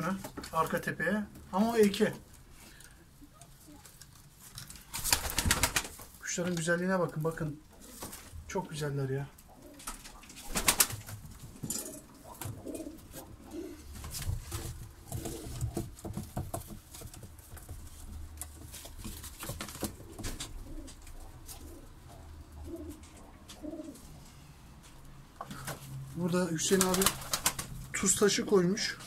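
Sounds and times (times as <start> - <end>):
pigeons cooing: 9.4 - 11.0, 11.6 - 15.8, 19.9 - 24.2.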